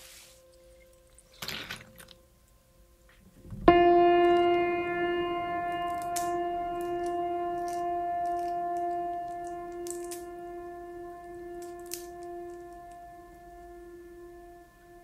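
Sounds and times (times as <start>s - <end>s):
held musical note: 3.2s - 15.0s.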